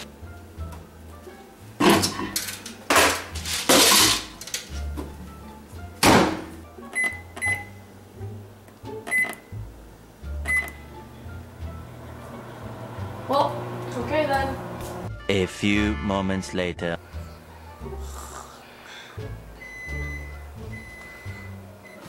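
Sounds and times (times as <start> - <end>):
keypad beeps: 7.0 - 7.7, 9.1 - 9.5, 10.5 - 10.8.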